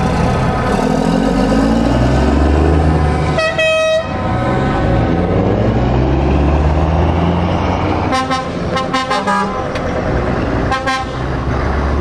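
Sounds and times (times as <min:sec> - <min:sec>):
diesel truck engines passing: 0:00.0 - 0:12.0
truck horn blasts: 0:03.3 - 0:04.3, 0:08.0 - 0:09.6, 0:10.7 - 0:11.3.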